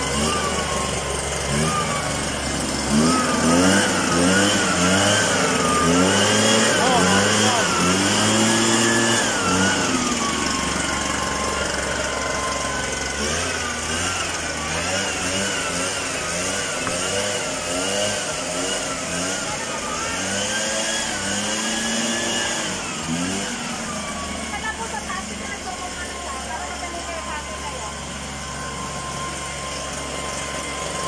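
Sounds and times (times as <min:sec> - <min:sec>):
small engine of misting machine: 0:00.0 - 0:31.0.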